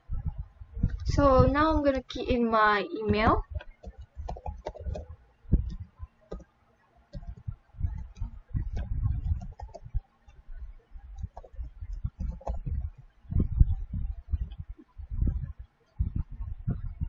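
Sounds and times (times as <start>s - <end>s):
typing on computer keyboard: 3.6s - 5.1s, 5.7s - 6.5s, 7.1s - 9.9s, 11.2s - 12.8s.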